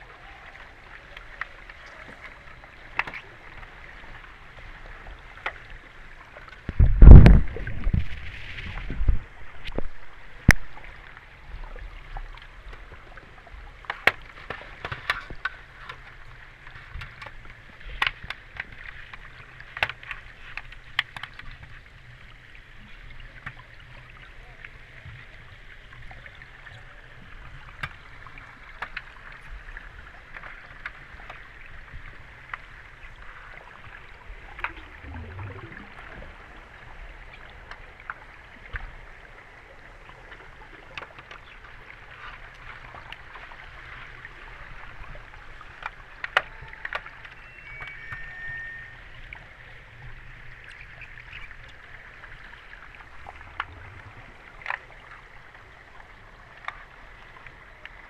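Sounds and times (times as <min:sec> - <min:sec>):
underwater bubbles hissing: 0:34.6 - 0:37.2.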